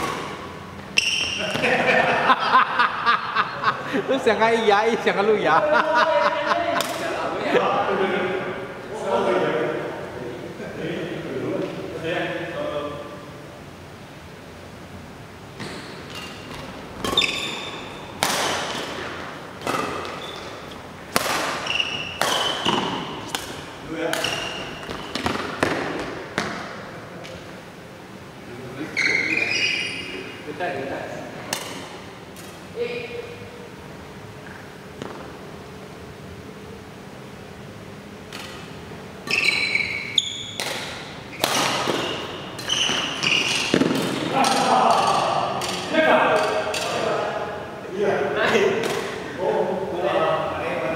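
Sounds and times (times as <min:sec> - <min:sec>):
rackets smacking a shuttlecock: 0:00.0 - 0:01.7, 0:18.2 - 0:20.2, 0:21.1 - 0:26.6, 0:40.6 - 0:47.0, 0:48.8 - 0:49.2
court shoes squeaking: 0:00.0 - 0:01.8, 0:15.5 - 0:27.4, 0:28.8 - 0:30.4, 0:38.3 - 0:47.0.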